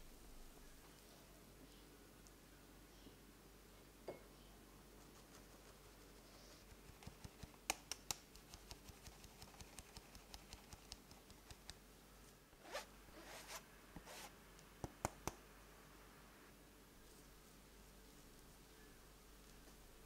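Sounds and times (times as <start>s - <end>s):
rustling swish: 12.6s - 14.3s.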